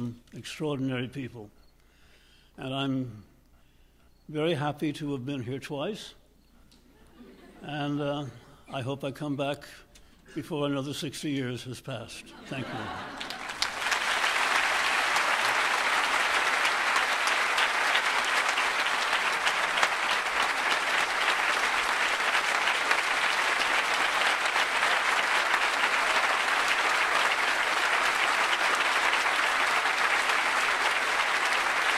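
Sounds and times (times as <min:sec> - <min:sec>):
audience applauding: 0:12.6 - 0:31.9.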